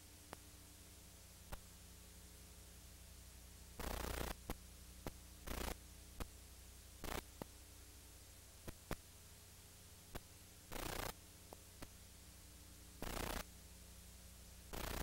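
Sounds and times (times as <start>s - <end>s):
mains hum and hiss: 0.0s - 15.0s
bursts of static: 3.8s - 6.4s, 7.0s - 7.5s, 10.1s - 11.2s, 13.0s - 13.5s, 14.7s - 15.0s.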